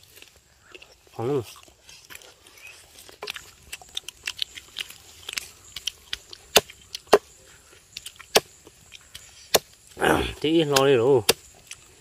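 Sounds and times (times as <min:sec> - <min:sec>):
sharp clicks and cracks: 0:10.6 - 0:11.9.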